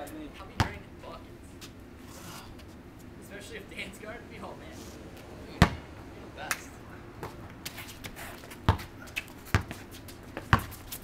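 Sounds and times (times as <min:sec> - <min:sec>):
basketball bouncing on concrete: 0:00.5 - 0:00.9, 0:05.6 - 0:05.9, 0:07.2 - 0:11.0.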